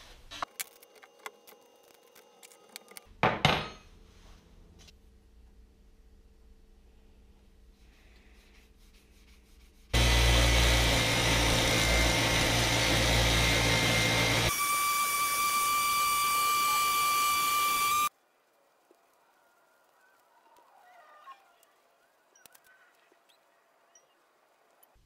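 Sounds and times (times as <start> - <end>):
bench grinder buffing wheel whine: 10.0 - 18.1.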